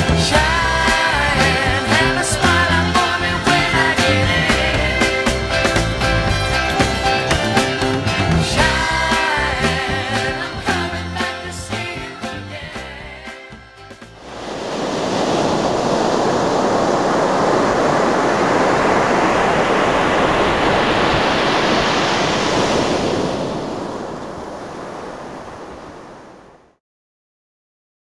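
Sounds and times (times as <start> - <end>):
rushing noise: 13.8 - 26.6.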